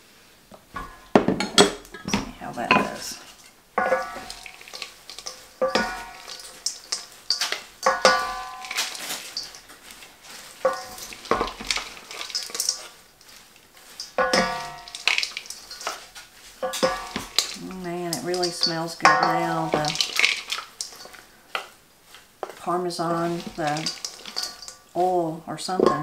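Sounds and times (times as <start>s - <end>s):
servers scraping metal bowl: 0.8s - 26.0s
wet leaves swishing: 2.3s - 26.0s.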